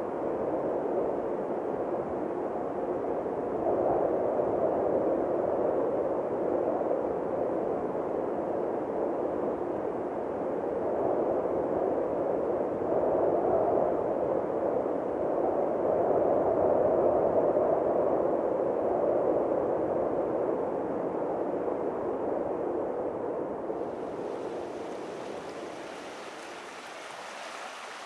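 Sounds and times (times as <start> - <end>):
muffled rushing noise: 23.8 - 28.0.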